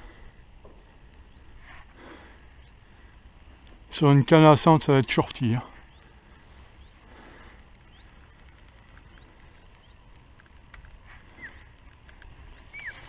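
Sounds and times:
faint rapid light ticking: 0:01.0 - 0:01.5, 0:02.6 - 0:04.1, 0:05.8 - 0:13.0.

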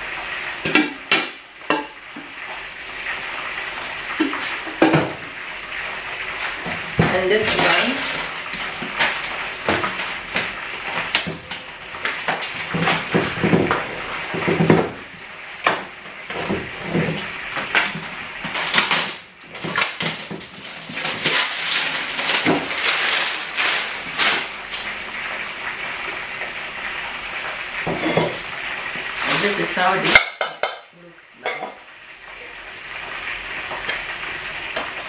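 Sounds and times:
paper and plastic crinkling: 0:06.5 - 0:14.6, 0:16.8 - 0:25.1, 0:29.1 - 0:30.0
pots and lids knocking: 0:30.1 - 0:31.8.

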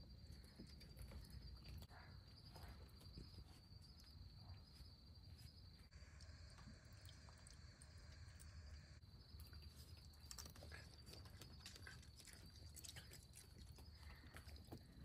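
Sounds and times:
raccoon chewing: 0:09.2 - 0:15.0.

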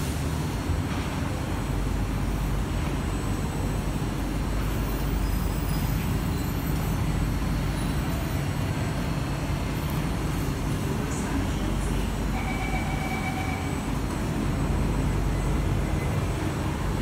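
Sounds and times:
metro train rumble and hum: 0:00.0 - 0:17.0.

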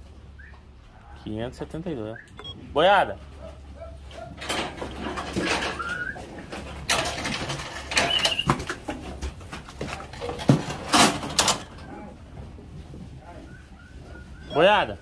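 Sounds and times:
cattle hooves knocking and clattering: 0:03.2 - 0:15.0.

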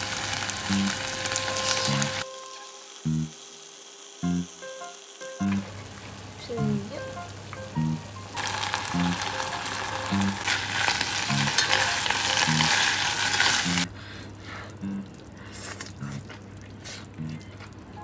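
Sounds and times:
food sizzling in a frying pan: 0:00.0 - 0:13.9
soft background music: 0:04.2 - 0:13.9.

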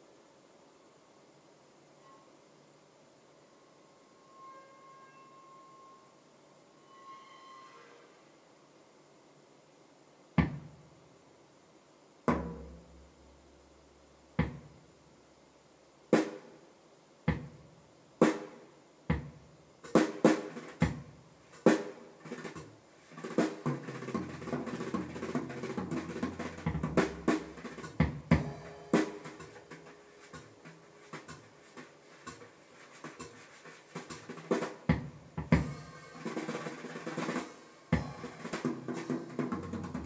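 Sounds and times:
drum-led music over loudspeakers: 0:19.1 - 0:40.0.

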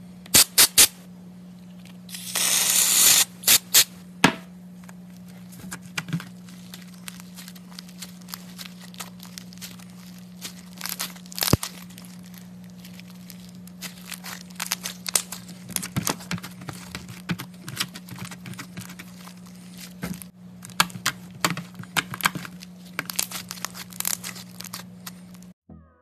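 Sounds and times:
slime crackling and popping: 0:06.6 - 0:16.4, 0:21.9 - 0:25.2.

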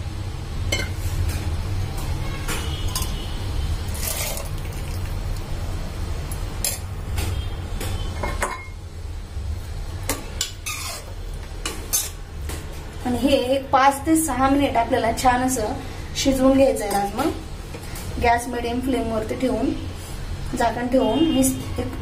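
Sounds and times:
metal spoon scraping a pot: 0:02.8 - 0:03.3, 0:03.9 - 0:04.6, 0:10.1 - 0:12.2.

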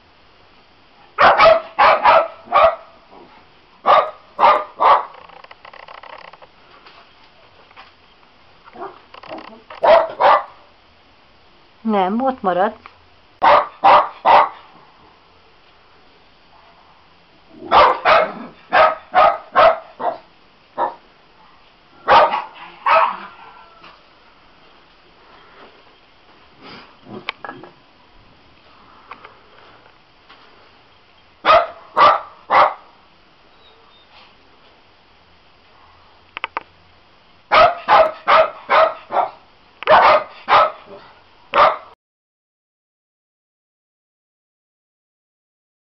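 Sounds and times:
small dog barking: 0:01.2 - 0:03.2, 0:03.8 - 0:05.2, 0:08.8 - 0:09.0, 0:09.8 - 0:10.7, 0:13.4 - 0:14.7, 0:17.6 - 0:21.1, 0:22.0 - 0:23.8, 0:31.4 - 0:32.9, 0:37.5 - 0:42.0.

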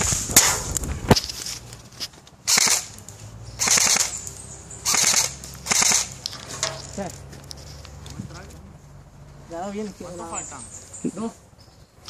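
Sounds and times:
airsoft rifle rapid fire: 0:02.4 - 0:03.0, 0:03.6 - 0:04.2, 0:04.8 - 0:06.3.

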